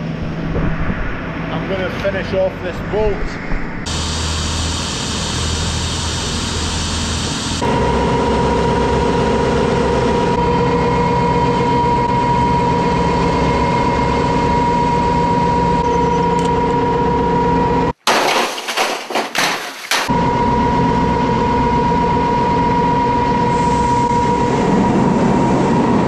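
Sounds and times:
machinery whining: 0.0s - 18.0s, 20.1s - 26.0s
clattering and crashing: 18.0s - 20.1s.

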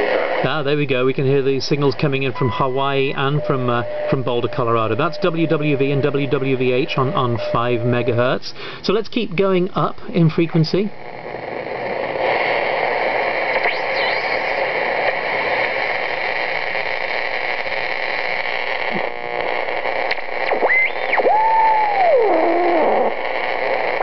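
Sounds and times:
shortwave radio static and hiss: 0.0s - 24.0s
heterodyne squeals: 1.7s - 8.4s, 13.6s - 14.6s, 20.5s - 23.6s.

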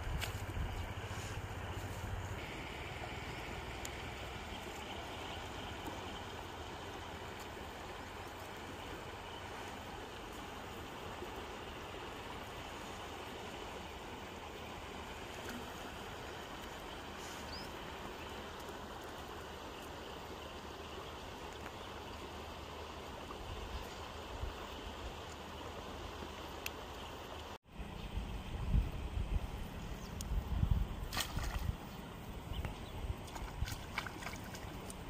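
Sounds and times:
wind rumble on microphone: 0.0s - 2.4s, 27.8s - 35.0s
steady outdoor hiss: 0.0s - 35.0s.

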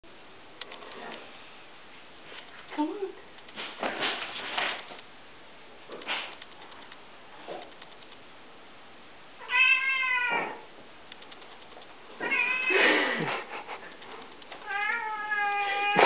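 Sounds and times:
cat meowing: 9.4s - 10.6s, 12.2s - 12.9s, 14.6s - 16.0s.

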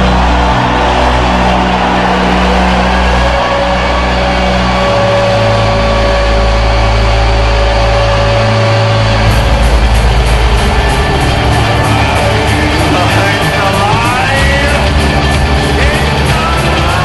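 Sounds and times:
low droning rock chord: 0.0s - 17.0s
drum beat: 9.3s - 17.0s.

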